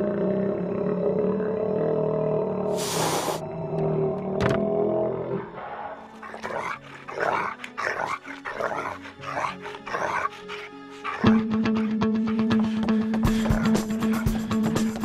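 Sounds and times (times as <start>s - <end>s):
monster snarling and growling: 0.0s - 11.6s
low music drone: 0.0s - 15.0s.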